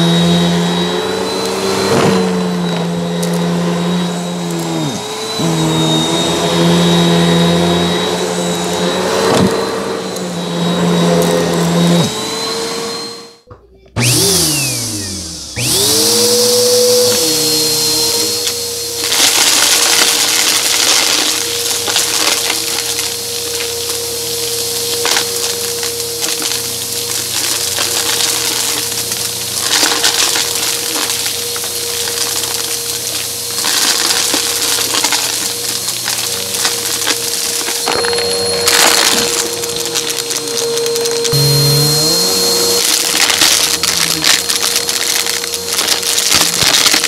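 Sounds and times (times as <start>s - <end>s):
vacuum cleaner motor whine: 0.0s - 47.0s
coins and pebbles rattling in vacuum: 15.8s - 47.0s.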